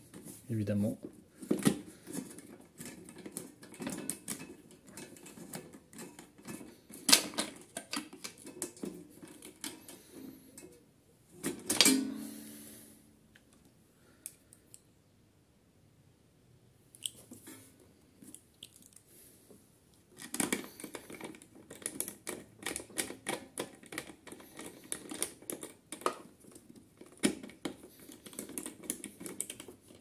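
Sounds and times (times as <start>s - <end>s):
metal and plastic parts clicking: 1.5s - 10.8s, 20.2s - 30.0s.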